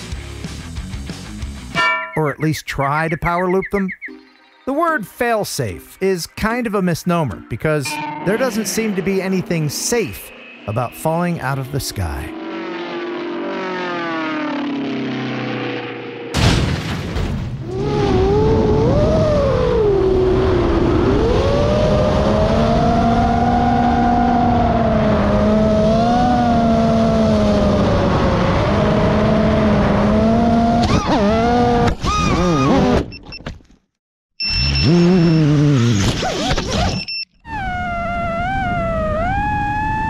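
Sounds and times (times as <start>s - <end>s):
quadcopter motors whining: 36.7s - 40.0s.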